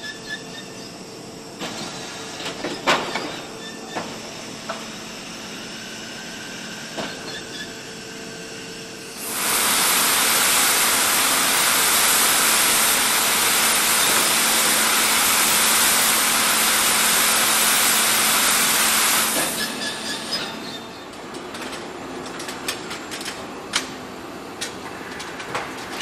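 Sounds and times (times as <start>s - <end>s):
loud steady hiss: 9.1s - 20.0s
machinery noise: 9.1s - 20.8s.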